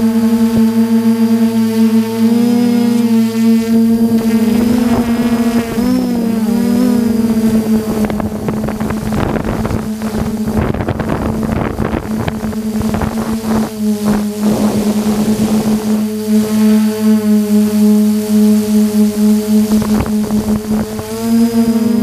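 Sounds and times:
drone motors humming: 0.0s - 22.0s
wind buffeting microphone: 2.5s - 16.5s, 19.6s - 22.0s.

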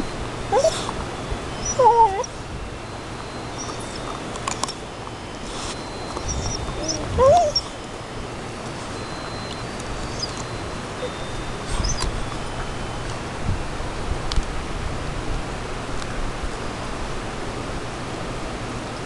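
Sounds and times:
dog whining: 0.0s - 4.8s, 5.4s - 7.9s, 8.7s - 12.7s.

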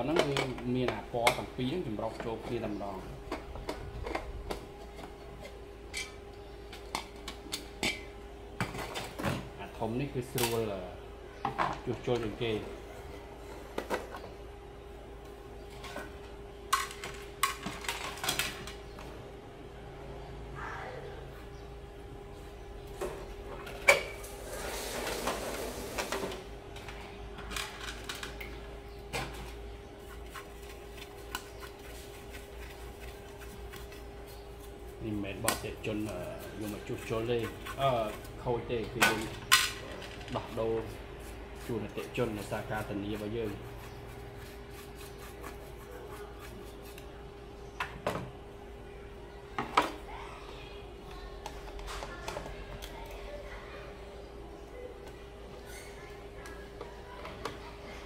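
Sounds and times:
paintbrush rubbing circuit board: 41.2s - 47.0s.

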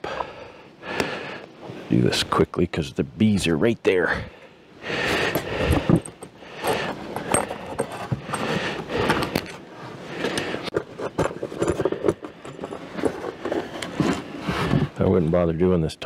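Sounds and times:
foam panel scraping and rubbing: 10.8s - 15.3s.

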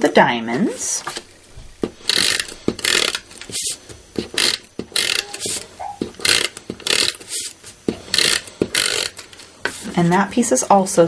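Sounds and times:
tape runner scratching on paper: 2.0s - 10.0s.

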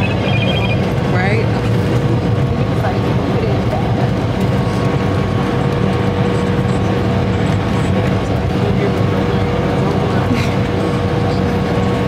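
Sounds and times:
airliner engine drone: 0.0s - 12.0s
constant cabin hum: 0.0s - 12.0s.

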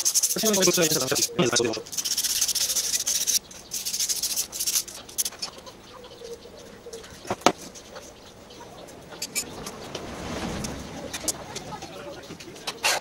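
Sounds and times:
rubbing strokes on metal: 0.0s - 5.5s.

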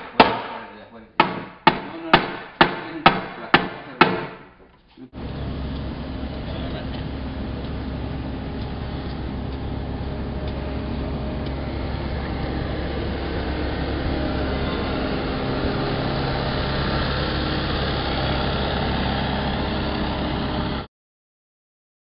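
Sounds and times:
engine rumbling with hum: 4.6s - 20.9s.

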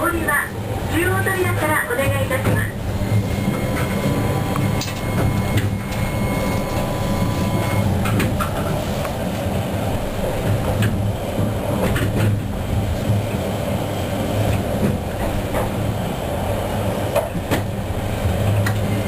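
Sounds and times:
tram rumble and motor hum: 0.0s - 19.0s
sharp clicks and knocks: 8.0s - 8.8s.

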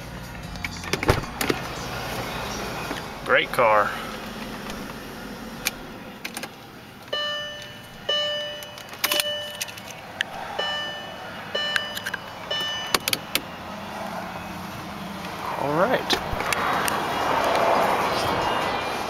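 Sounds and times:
dashboard warning chime: 7.1s - 9.8s, 10.6s - 13.2s
keys jingling: 8.5s - 10.0s.

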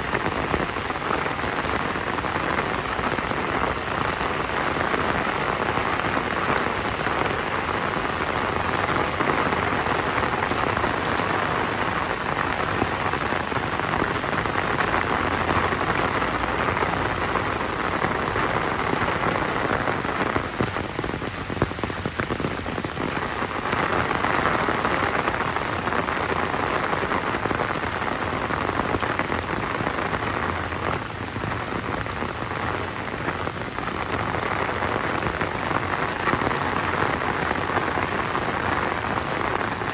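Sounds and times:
rain pattering: 0.0s - 39.9s.

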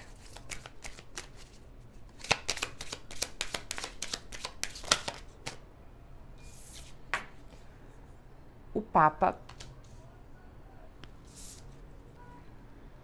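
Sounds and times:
cards shuffling: 0.1s - 5.6s, 9.4s - 10.0s.

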